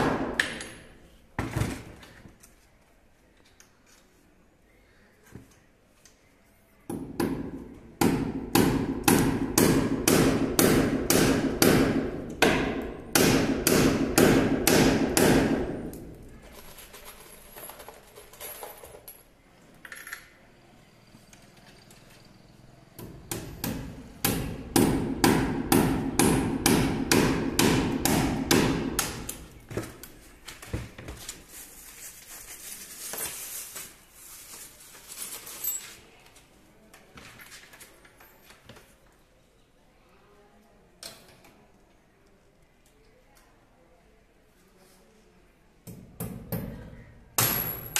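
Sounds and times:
hammer driving a nail: 6.9 - 16.0, 23.0 - 29.4.

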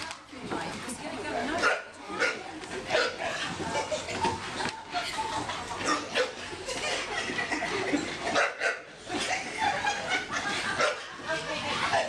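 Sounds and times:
people chattering and laughing: 0.0 - 12.0
dog barking: 1.6 - 3.4, 5.9 - 6.4, 8.3 - 8.9.

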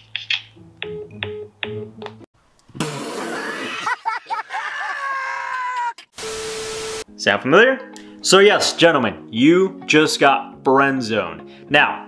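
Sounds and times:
plucked keyboard notes: 0.6 - 2.2
man laughing loudly: 3.2 - 6.0.

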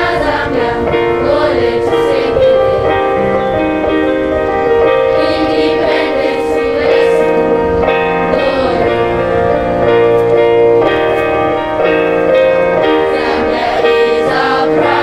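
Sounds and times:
children's choir singing: 0.0 - 3.4, 5.0 - 9.9, 12.7 - 15.0
instrumental accompaniment: 0.0 - 15.0.

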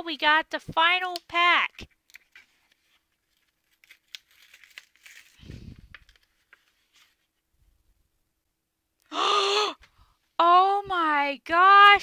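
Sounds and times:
foil pack crinkling: 2.1 - 6.8.

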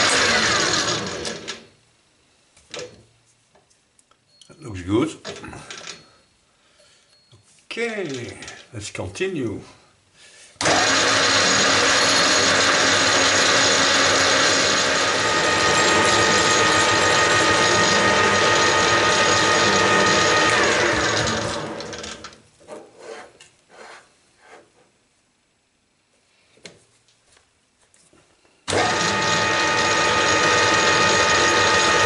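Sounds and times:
metal lathe machining: 10.6 - 22.2, 28.7 - 32.0
lathe spindle coasting to a stop: 10.8 - 22.3.

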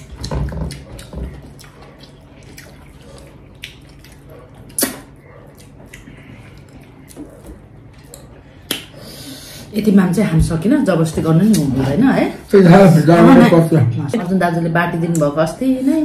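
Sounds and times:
wet eating and chewing: 0.0 - 9.3.

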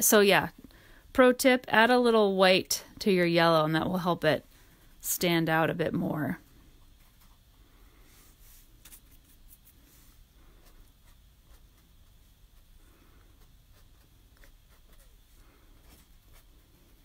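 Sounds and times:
paintbrush scratching on canvas: 8.2 - 17.0.

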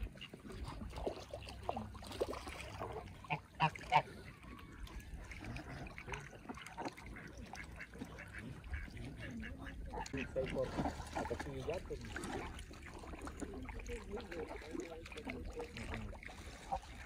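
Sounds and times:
geese and ducks honking: 2.9 - 11.8.

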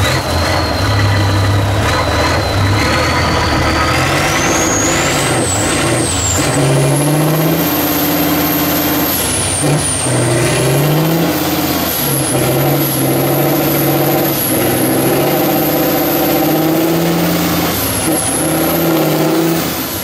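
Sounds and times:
truck diesel engine revving: 0.0 - 20.0.

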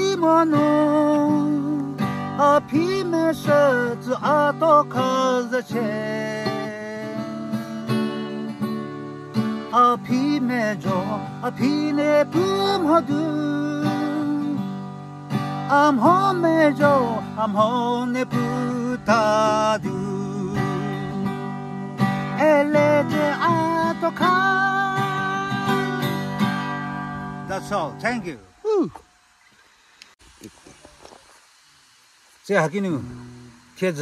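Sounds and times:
man singing: 0.0 - 8.5, 9.7 - 14.7, 15.6 - 26.4
acoustic guitar strumming: 0.0 - 29.3, 32.4 - 34.0.

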